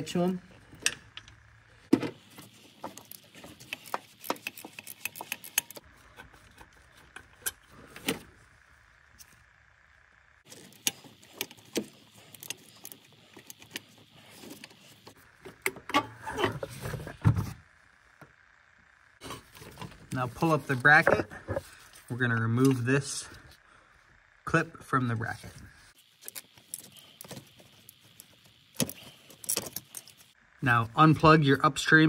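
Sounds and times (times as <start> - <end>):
ratchet clicking: 3.0 - 5.8.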